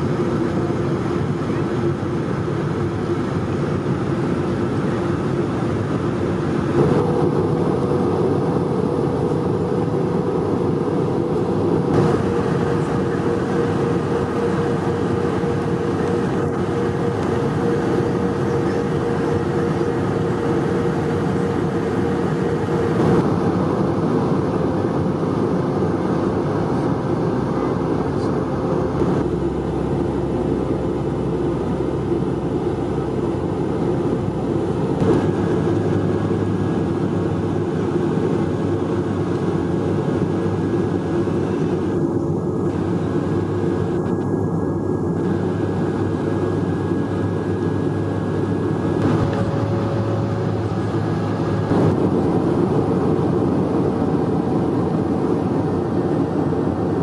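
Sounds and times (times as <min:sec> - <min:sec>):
airplane cabin engine hum: 0:00.0 - 0:57.0
high steady tone: 0:49.0 - 0:52.0.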